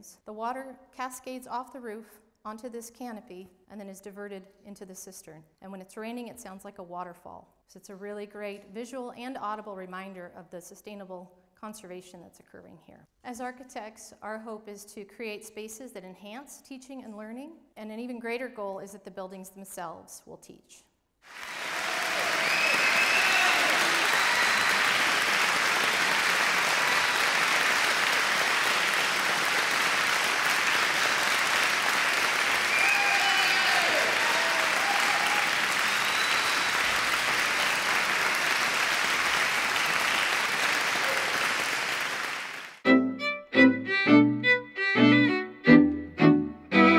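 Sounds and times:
audience applauding: 21.2 - 42.8
music of short separate notes: 42.8 - 46.9.

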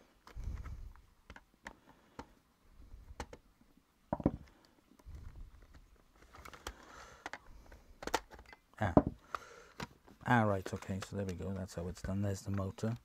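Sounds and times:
plastic clicks and knocks: 8.0 - 13.0.

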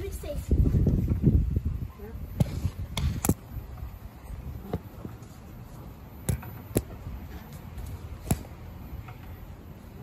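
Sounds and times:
wind rumble on microphone: 0.0 - 5.2.

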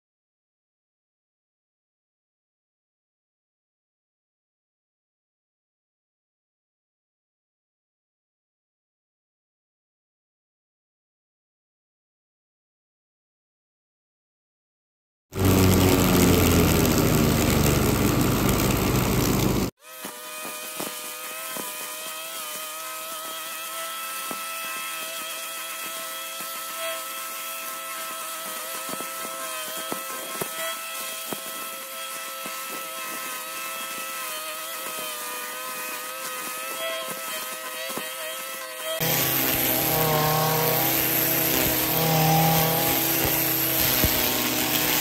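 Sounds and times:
loud sound: 15.4 - 19.7
leaf blower running: 15.4 - 45.0.

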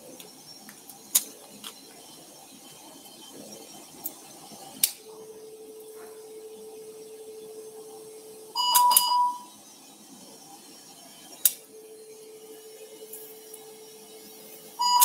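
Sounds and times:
electrosurgical unit low tone: 0.0 - 15.0
high beep tone: 8.6 - 9.5, 14.8 - 15.0.

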